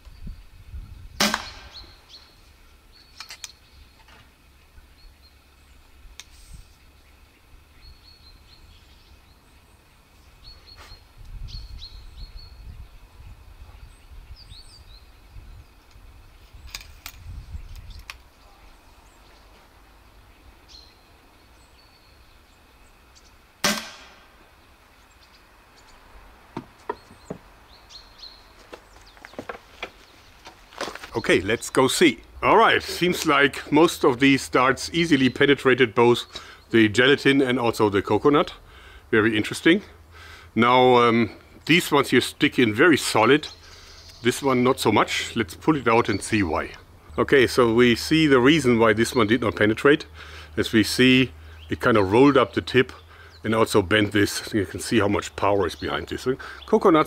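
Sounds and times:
birds chirping: 0.0s - 57.0s
air rifle shot: 1.2s - 2.0s, 23.6s - 24.4s
gun handling clicks: 3.2s - 3.6s, 16.7s - 18.3s.

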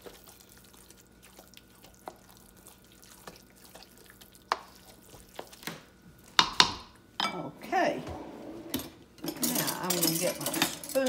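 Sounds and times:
spoon stirring wet mixture: 0.0s - 7.9s.

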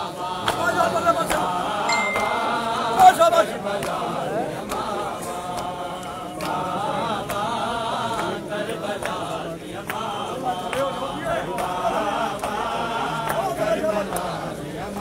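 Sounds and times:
men chanting a lament: 0.0s - 15.0s.

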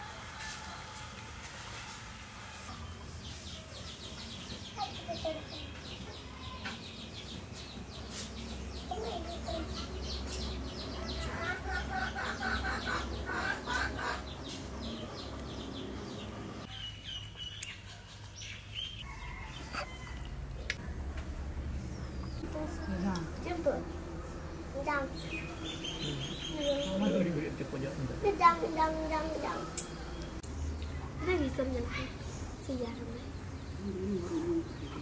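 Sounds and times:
chickens clucking: 8.8s - 16.8s
steady low hum: 18.7s - 31.6s.

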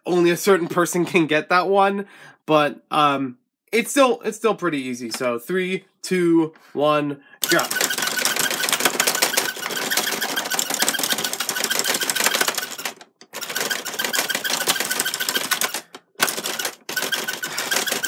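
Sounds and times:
toy buttons clattering rapidly: 7.4s - 18.0s.

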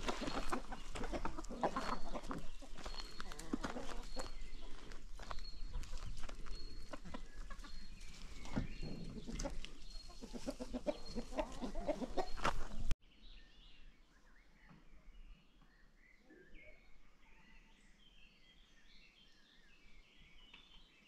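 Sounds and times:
chickens clucking: 0.0s - 12.9s.

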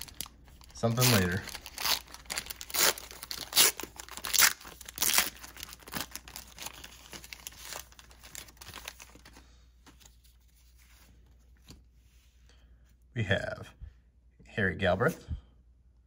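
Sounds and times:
wax paper pack tearing: 0.0s - 9.3s
rustling of wrapper and cards: 0.0s - 11.9s.

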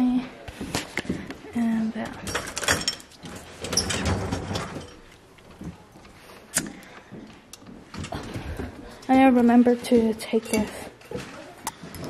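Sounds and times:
mugs and glasses rattling: 2.2s - 5.2s
dishwasher rack rolling on rails: 2.3s - 5.1s.

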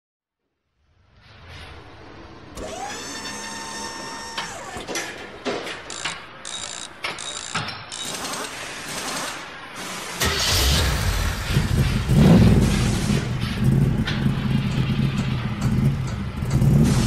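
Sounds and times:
rising mechanical whir: 1.6s - 5.0s
ratchet-like clicks: 5.9s - 9.5s
metallic clanks: 11.1s - 17.0s.

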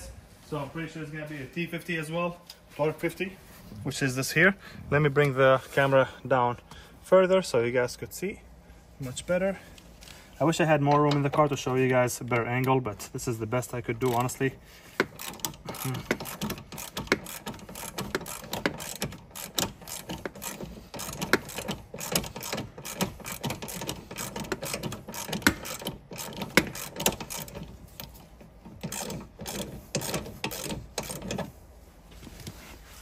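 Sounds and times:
hand ratchet clicking: 14.0s - 31.6s.

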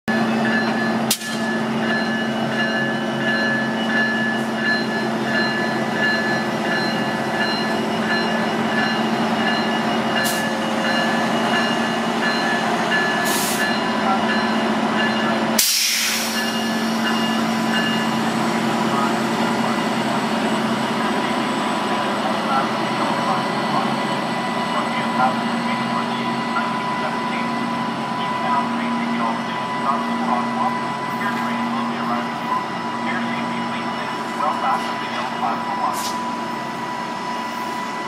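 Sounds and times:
locomotive engine drone: 0.1s - 38.0s
sharp hiss: 15.6s - 16.6s.

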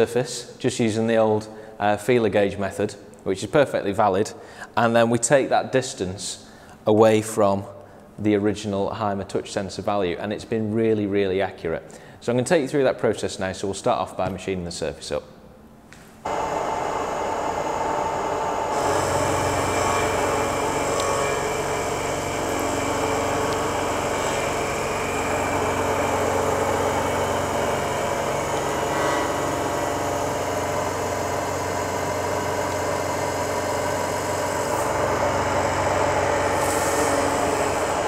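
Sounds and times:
milling machine cutting plastic: 16.3s - 38.0s.

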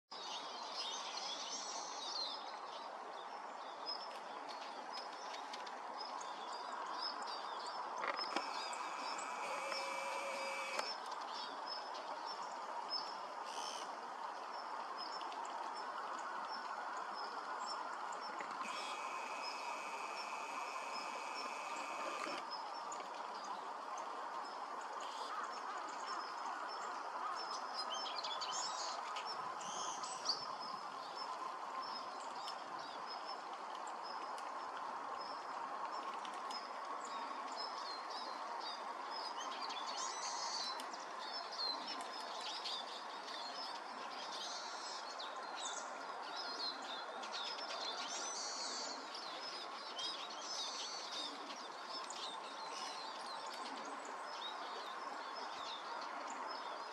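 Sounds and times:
birds twittering chirps: 7.1s - 11.5s, 18.3s - 22.9s.

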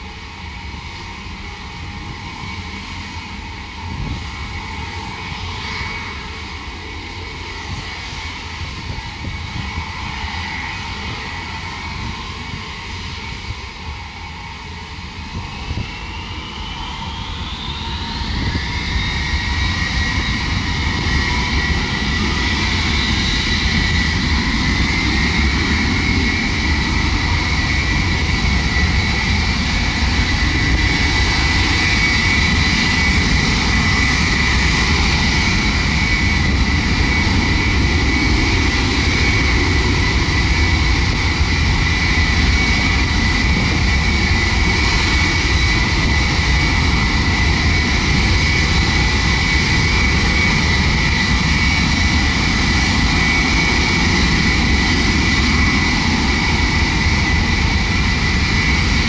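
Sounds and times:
turbofan engines running: 0.0s - 59.0s.

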